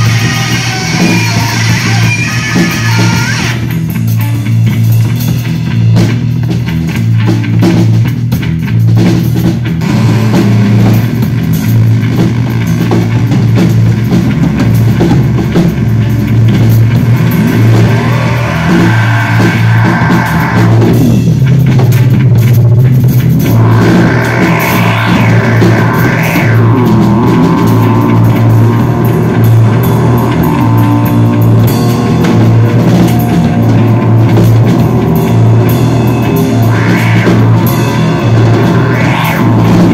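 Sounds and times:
heavy bass guitar riff: 0.0 - 39.9
rock drums: 0.0 - 39.9
sweeping effect tones: 16.3 - 21.3, 23.4 - 39.9.

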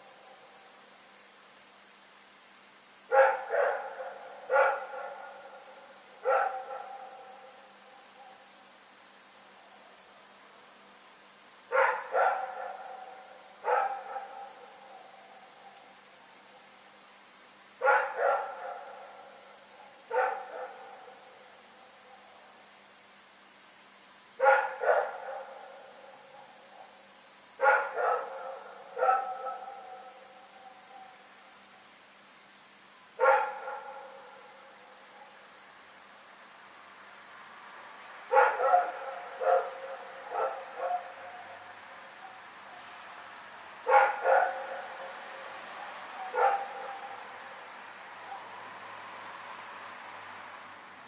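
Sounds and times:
dog barking with echo: 3.1 - 7.6, 11.7 - 15.7, 17.8 - 21.4, 24.4 - 27.0, 27.6 - 31.2, 33.2 - 34.5, 38.3 - 42.8, 43.8 - 45.5, 46.1 - 47.2.

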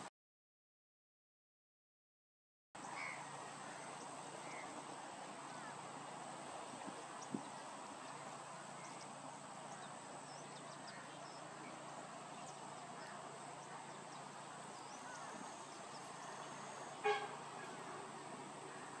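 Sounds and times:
outdoor background noise: 2.8 - 19.0
brief honk: 16.8 - 18.0.

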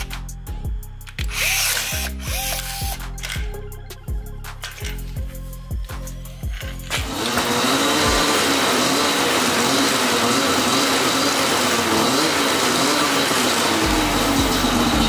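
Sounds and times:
snowmobile engine with track whirring: 6.4 - 15.0.

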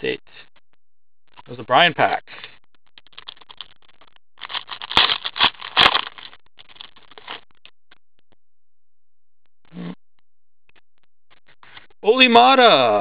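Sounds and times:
trading cards shuffling: 4.4 - 7.4.

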